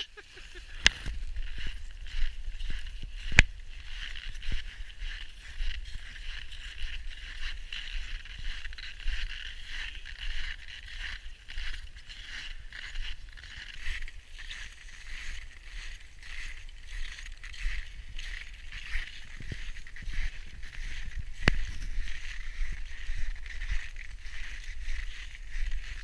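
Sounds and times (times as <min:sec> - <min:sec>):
footsteps crunching through snow: 0:00.0 - 0:26.0
wind rumble on microphone: 0:00.6 - 0:26.0.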